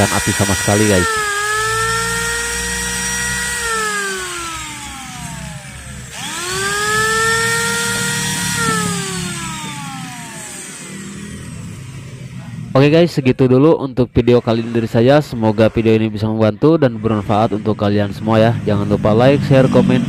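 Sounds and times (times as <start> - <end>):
angle grinder whining: 0.0 - 12.7.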